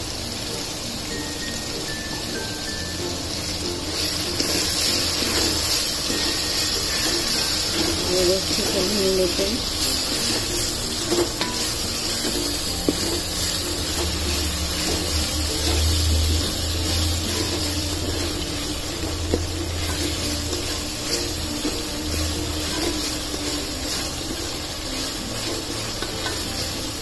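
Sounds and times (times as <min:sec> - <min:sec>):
sauce sizzling in hot oil: 0:00.0 - 0:27.0
spoon tapping pot: 0:25.5 - 0:26.8.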